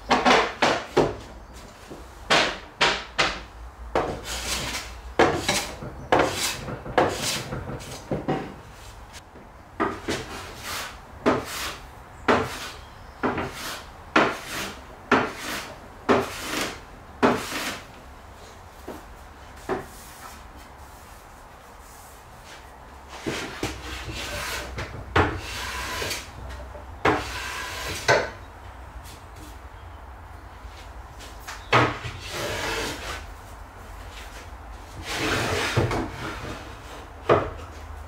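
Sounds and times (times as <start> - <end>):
hand plane shaving wood: 13.4 - 17.8.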